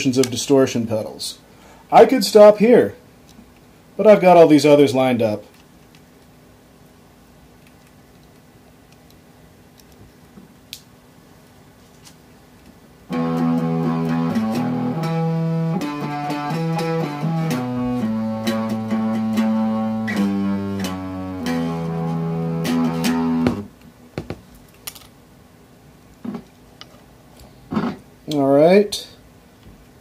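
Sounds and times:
distorted electric guitar riff: 13.1 - 23.7.

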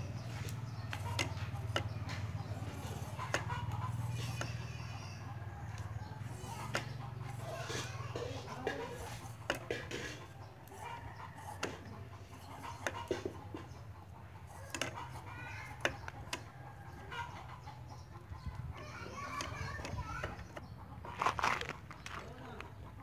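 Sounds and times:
chickens clucking: 0.0 - 23.0
sharp clicks and taps: 0.2 - 4.8, 5.7 - 17.6.

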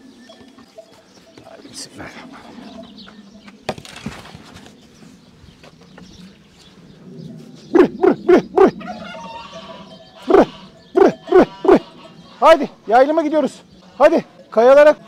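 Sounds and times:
man calling sheep: 10.2 - 15.0.

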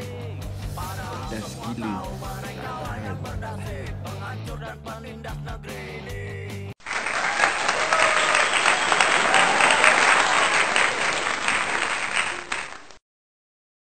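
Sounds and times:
rock music: 0.0 - 6.7
crowd applause: 6.8 - 13.0.

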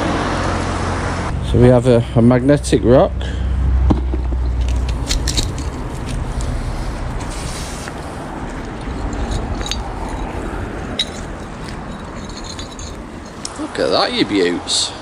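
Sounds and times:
chain clicking: 4.2 - 13.6.

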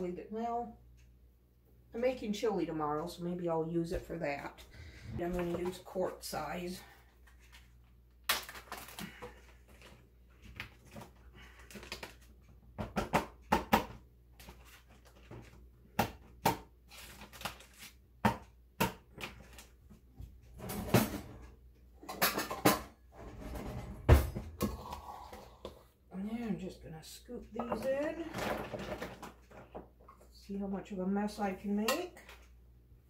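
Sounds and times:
plastic bags crinkling: 8.3 - 10.0.

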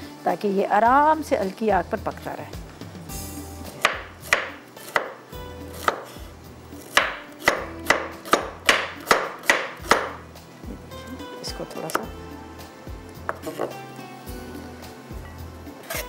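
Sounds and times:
knife chopping on cutting board: 3.7 - 6.2, 6.8 - 10.2, 13.3 - 13.8.

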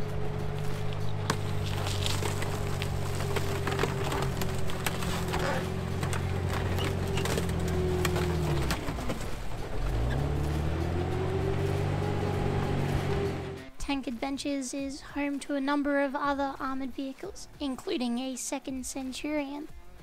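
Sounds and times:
tank engine under load: 0.0 - 13.8
car body crushing cracks: 1.2 - 9.8.

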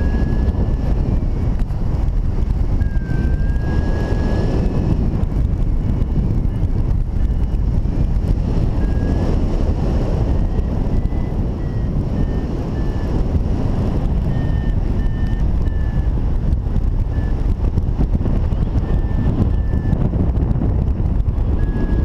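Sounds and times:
variometer short beeps: 0.0 - 22.0
wind rushing over microphone: 0.0 - 22.0.

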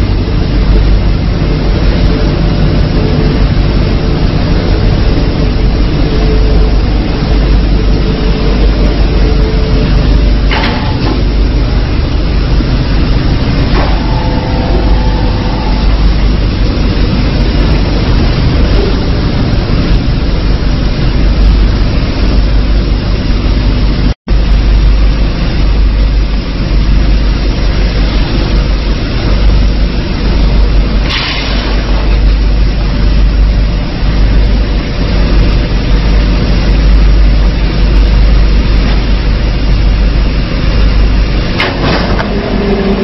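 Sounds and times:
loud machinery running: 0.0 - 43.0
brief higher whine: 12.4 - 20.0, 41.6 - 43.0.

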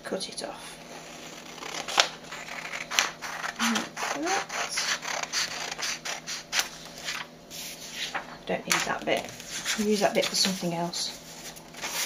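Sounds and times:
scissors snipping paper: 1.4 - 7.1.

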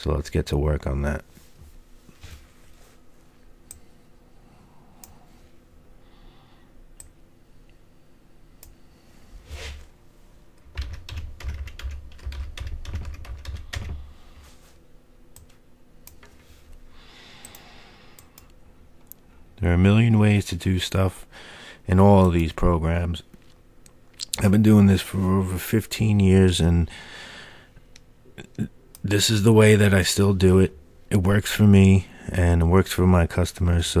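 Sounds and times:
typing on computer keyboard: 10.7 - 14.0.

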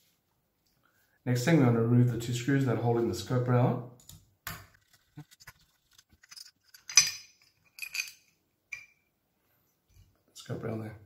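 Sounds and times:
metal clink: 6.2 - 9.1.

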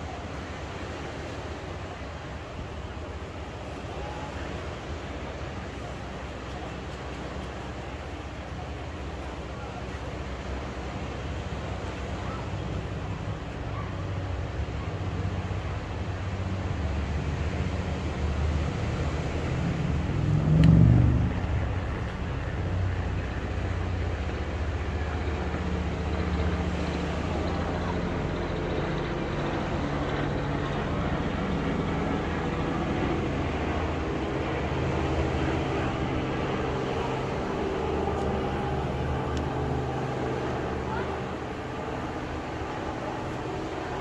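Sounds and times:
low engine hum: 0.0 - 44.0
low rumble: 18.4 - 31.5.

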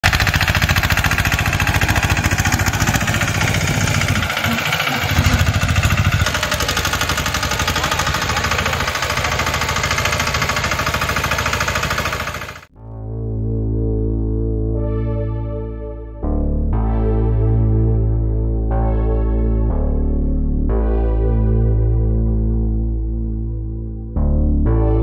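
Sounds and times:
tractor engine running: 0.0 - 12.7.

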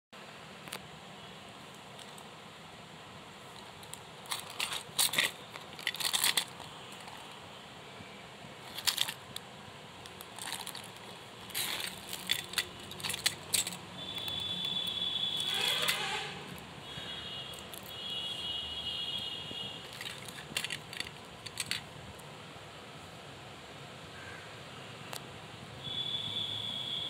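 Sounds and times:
plastic pens clattering: 3.5 - 7.4, 8.6 - 9.4, 10.0 - 16.7, 17.5 - 18.0, 19.8 - 22.0
scraping rustle: 3.5 - 7.4, 10.1 - 16.7, 19.7 - 21.9.

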